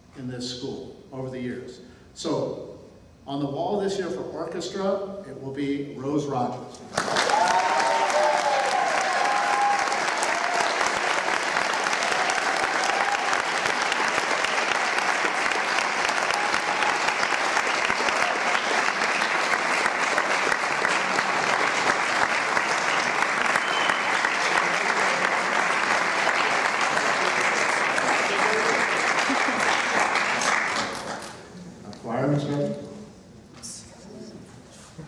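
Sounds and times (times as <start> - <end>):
audience applause: 7.0 - 31.4.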